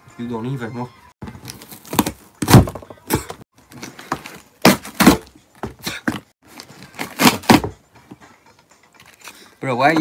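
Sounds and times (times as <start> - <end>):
cardboard packaging tearing: 6.5 - 7.7.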